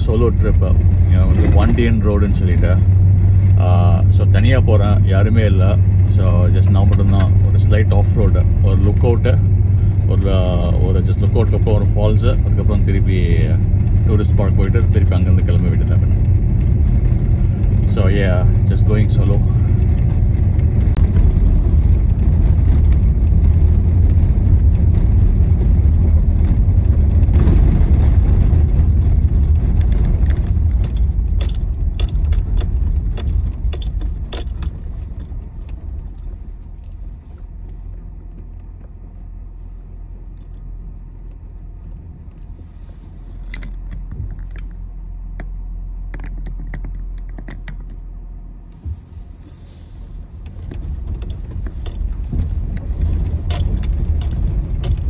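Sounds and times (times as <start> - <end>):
car tyres and engine rumble: 0.0 - 55.0
small clicks and rattles: 10.7 - 39.2, 40.2 - 48.1, 50.4 - 55.0.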